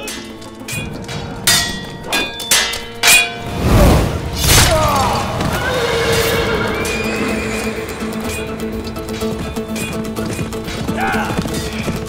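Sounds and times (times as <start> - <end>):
sword metallic clashes: 0.0 - 3.5
dramatic music score: 0.0 - 12.0.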